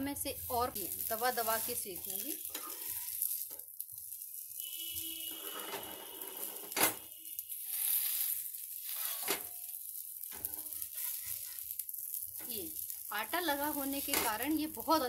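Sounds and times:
patties sizzling on a pan: 0.0s - 15.0s.

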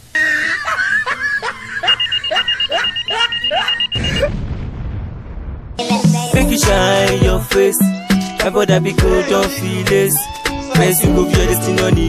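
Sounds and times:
swooping electronic chirps: 1.6s - 4.3s
pulsing electronic beep: 1.9s - 4.3s.

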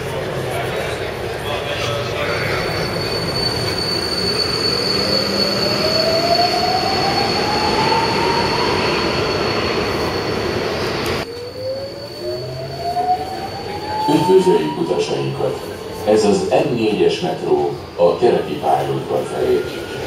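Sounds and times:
wheel and rail rumble: 0.0s - 20.0s
traction motor whine: 2.2s - 17.1s
steady high whistle: 2.4s - 20.0s.

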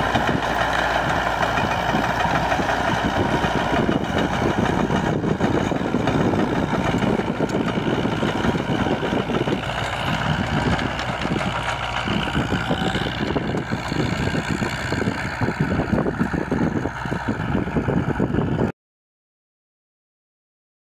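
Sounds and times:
diesel engines droning under load: 0.0s - 18.7s
tilled earth rushing: 0.0s - 18.7s.

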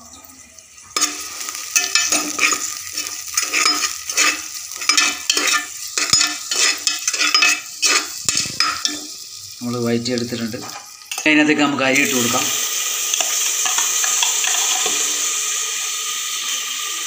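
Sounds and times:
onion and spices sizzling in pot: 0.0s - 17.0s
spoon scraping pot bottom: 1.0s - 9.2s.

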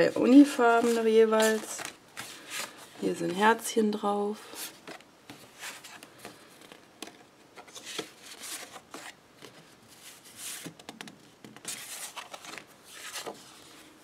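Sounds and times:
card sheets swishing and rustling: 0.0s - 3.4s, 4.4s - 14.0s.

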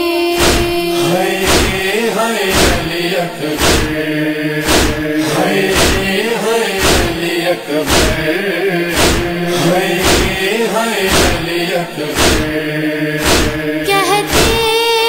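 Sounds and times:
solo singer with wavering pitch: 0.0s - 3.4s, 13.7s - 15.0s
voices chanting a lament: 0.0s - 15.0s
steady beat: 0.4s - 14.9s.

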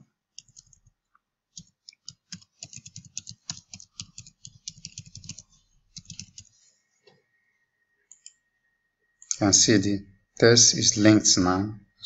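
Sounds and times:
rapid keyboard typing: 0.4s - 6.5s.

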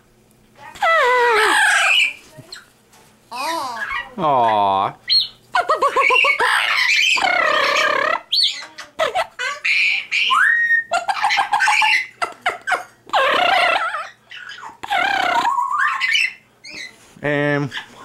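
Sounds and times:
parrot squawking and shrieking: 0.7s - 2.7s, 3.3s - 17.0s, 17.6s - 18.0s
parrot rising whistle: 5.1s - 8.6s, 9.8s - 11.0s, 13.2s - 16.9s.

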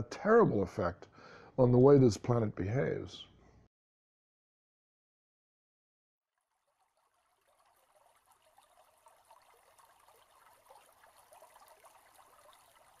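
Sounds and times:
small stream trickling: 6.3s - 13.0s.

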